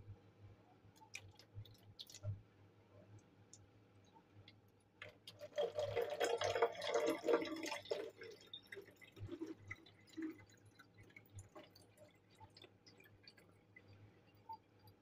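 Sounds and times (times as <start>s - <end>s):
water dripping: 0.9s - 2.4s, 3.2s - 15.0s
water pouring into plastic bottle: 1.0s - 2.4s, 5.0s - 15.0s.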